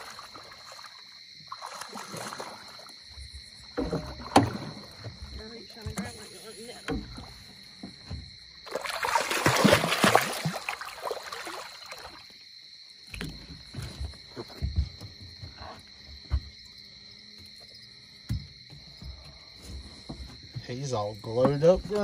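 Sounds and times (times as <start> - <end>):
fish splashing in water: 0.0 - 3.0, 8.6 - 12.4.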